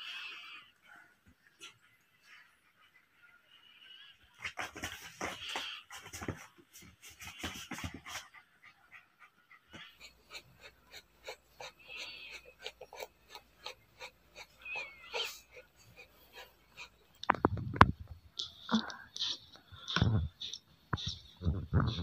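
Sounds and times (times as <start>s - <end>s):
dog panting fast: 4.5s - 17.0s.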